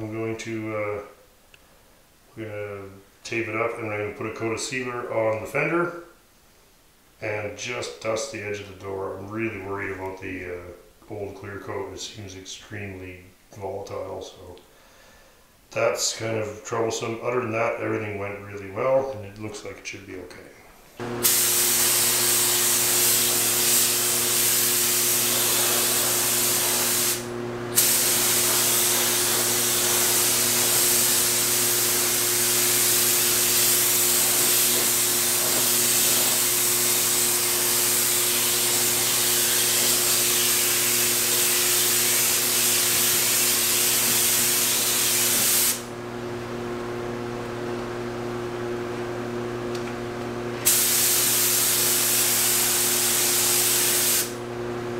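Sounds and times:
paint spray gun hissing: 0:21.2 - 0:45.9, 0:50.6 - 0:54.4.

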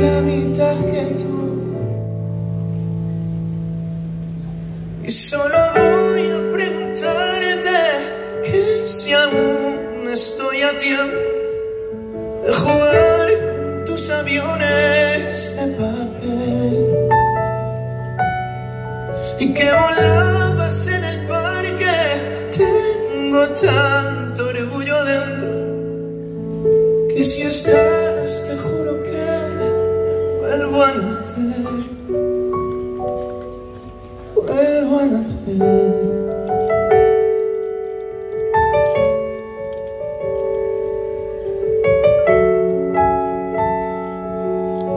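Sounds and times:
man singing: 0:00.0 - 0:02.1, 0:05.0 - 0:17.4, 0:19.2 - 0:26.1, 0:27.0 - 0:32.5, 0:34.3 - 0:36.6
electric keyboard chords: 0:00.0 - 0:44.9.

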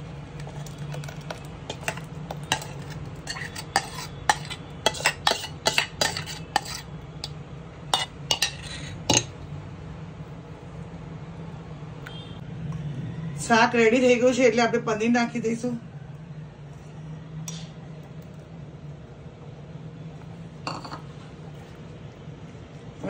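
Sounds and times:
stirring thick gravy: 0:00.0 - 0:06.9
spatula clicking on jar and pan: 0:01.7 - 0:07.4.

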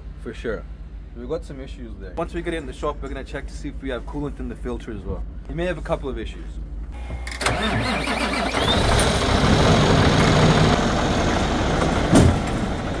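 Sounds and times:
rising engine whine: 0:07.0 - 0:13.0
diesel engine running: 0:07.3 - 0:13.0.

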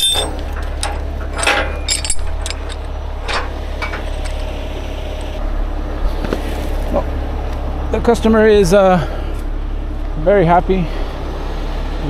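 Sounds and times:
metal hook clinking: 0:00.0 - 0:05.4
steady low rumble: 0:00.0 - 0:11.3.

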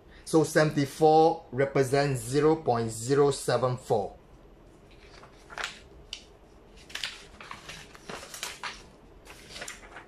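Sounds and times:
paper rustling and crinkling: 0:04.9 - 0:10.0.

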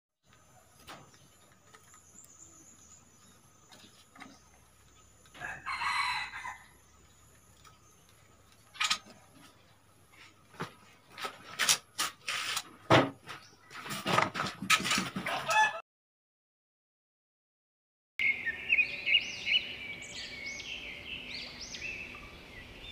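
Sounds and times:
birds calling: 0:00.2 - 0:11.0, 0:18.2 - 0:22.9.

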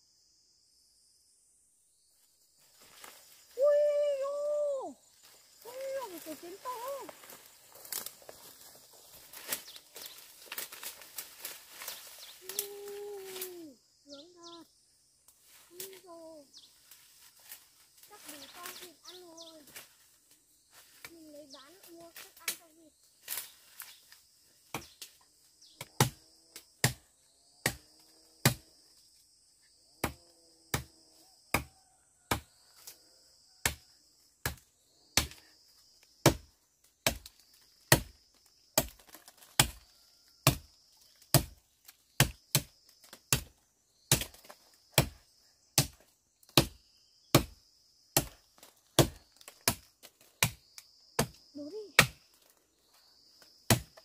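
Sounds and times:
insects trilling: 0:00.0 - 0:54.0
machete chopping tree trunk: 0:24.7 - 0:25.2, 0:25.8 - 0:27.0, 0:27.6 - 0:28.8, 0:30.0 - 0:32.6, 0:33.6 - 0:34.6, 0:35.2 - 0:35.4, 0:36.2 - 0:51.4, 0:52.0 - 0:52.3, 0:53.7 - 0:54.0.

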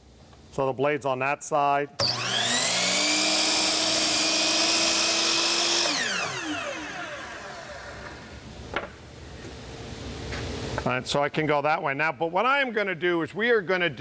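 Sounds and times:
miter saw whining: 0:02.0 - 0:08.3.

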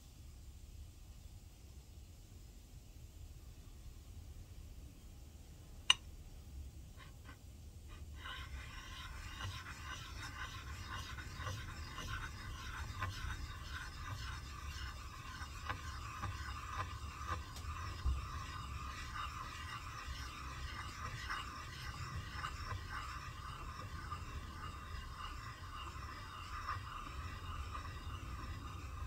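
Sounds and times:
metal scraping on abrasive: 0:07.0 - 0:29.0.

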